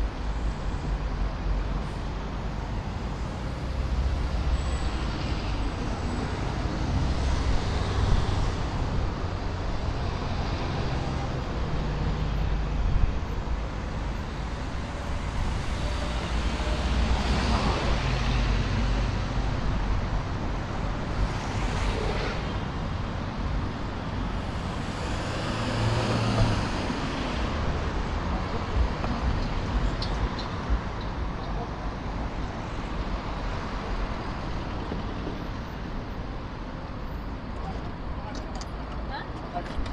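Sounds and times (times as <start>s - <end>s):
passing vehicles rumbling: 0.0s - 39.9s.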